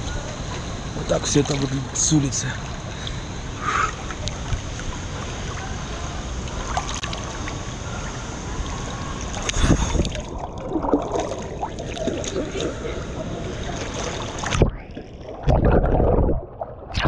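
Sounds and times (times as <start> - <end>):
wind blowing on microphone: 9.5 - 10.3.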